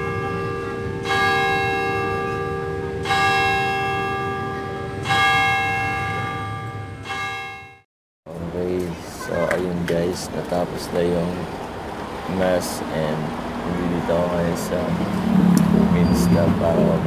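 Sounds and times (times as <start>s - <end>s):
church bell tolling: 0.0s - 7.8s.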